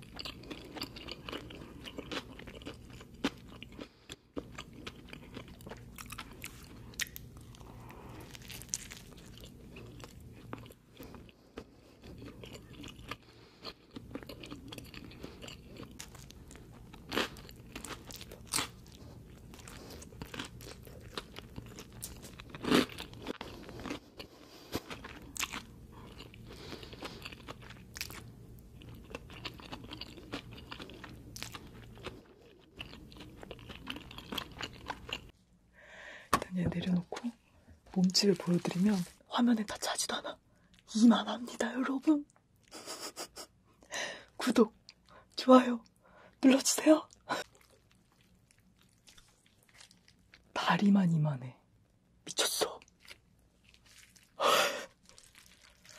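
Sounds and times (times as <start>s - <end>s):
crunchy bites and chewing: 0.0s - 35.3s, 47.4s - 50.5s, 52.8s - 55.9s.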